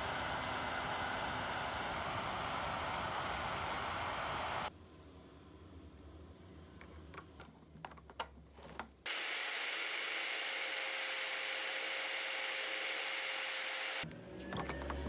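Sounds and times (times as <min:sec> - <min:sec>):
drill press with abrasive hiss: 0:00.0 - 0:04.7, 0:09.1 - 0:14.0.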